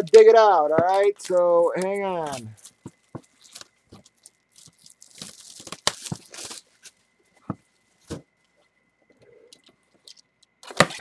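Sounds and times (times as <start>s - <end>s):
plastic wrap ripping and crinkling: 1.1s - 7.0s.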